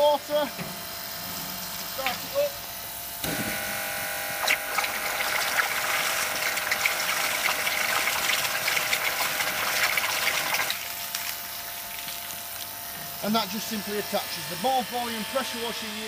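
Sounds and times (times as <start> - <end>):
pressure washer whining: 0.0 - 16.0
water splashing on ground: 4.4 - 12.8.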